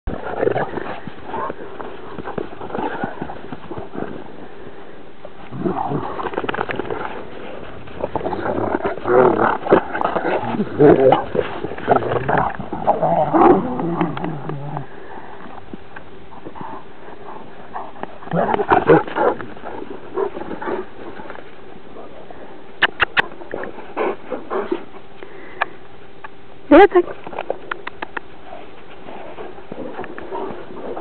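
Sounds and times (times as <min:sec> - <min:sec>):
dogs growling: 0:00.1 - 0:25.0, 0:28.4 - 0:31.0.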